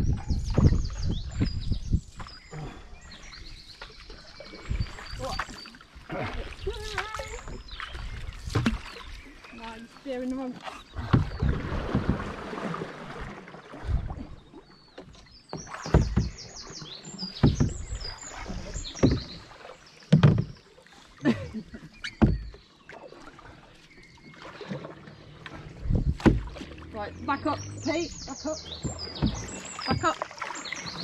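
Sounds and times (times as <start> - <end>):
wind gust on microphone: 0.0 - 2.6
paddle strokes through water: 0.0 - 31.0
paddles knocking against canoe: 0.0 - 31.0
bird chirping: 26.9 - 31.0.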